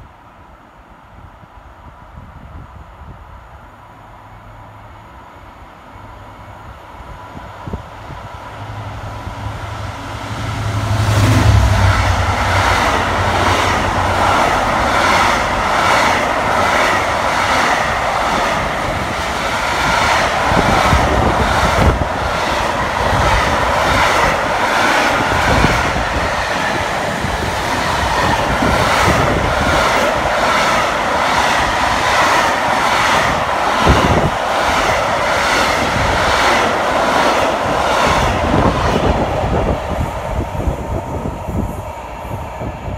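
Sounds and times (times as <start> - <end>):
diesel locomotive engine: 0.0 - 42.9
train wheels clattering on rails: 11.1 - 41.3.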